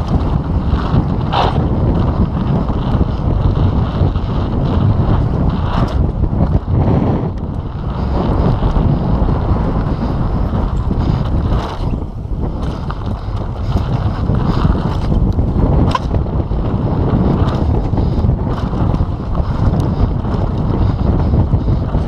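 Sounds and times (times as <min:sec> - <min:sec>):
tyres rumbling on dirt: 0:00.0 - 0:22.0
wind buffeting microphone: 0:00.0 - 0:22.0
bike knocks over bumps: 0:10.7 - 0:16.4.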